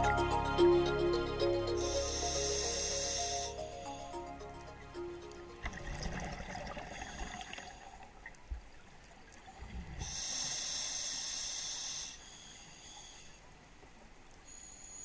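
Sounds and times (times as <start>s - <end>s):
regulator hiss: 1.6s - 4.3s, 10.0s - 13.4s.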